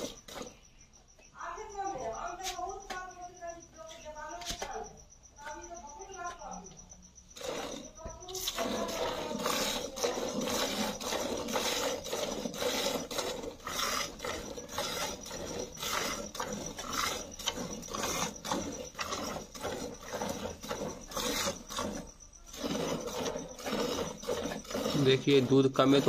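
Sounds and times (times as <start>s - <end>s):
milk squirting into metal bucket: 7.4s - 26.0s.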